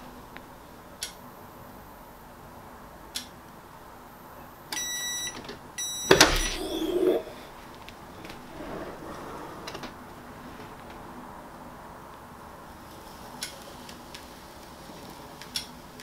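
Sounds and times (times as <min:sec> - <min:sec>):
heat press clunk and rattle: 0:06.1 - 0:07.1
soft rustling: 0:07.2 - 0:11.1.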